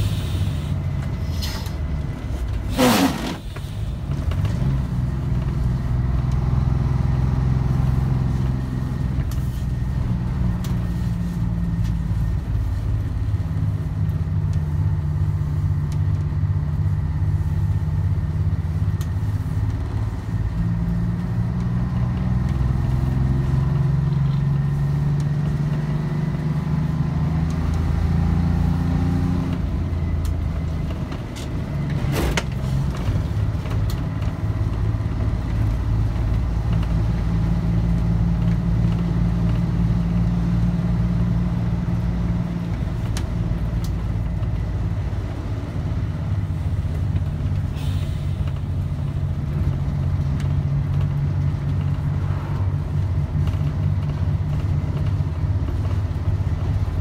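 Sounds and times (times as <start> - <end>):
bus diesel engine droning: 0.0 - 57.0.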